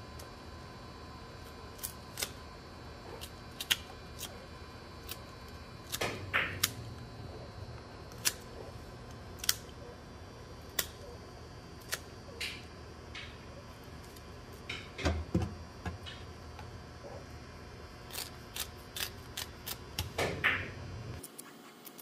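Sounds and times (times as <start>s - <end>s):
knife scraping rasp: 18.0s - 19.8s.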